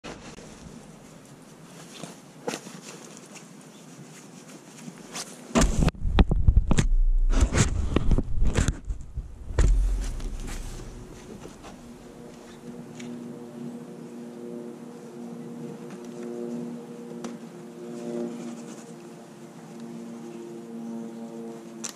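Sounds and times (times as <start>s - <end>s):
low rumbling and knocks on microphone: 5.6s - 12.0s.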